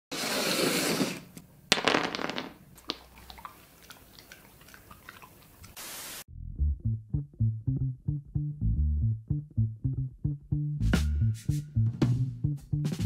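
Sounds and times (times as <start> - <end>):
static hiss: 5.8 - 6.2.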